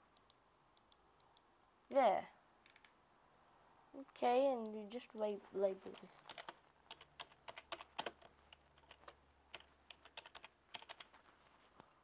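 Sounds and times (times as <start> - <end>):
faint keyboard typing: 4.5 - 12.0.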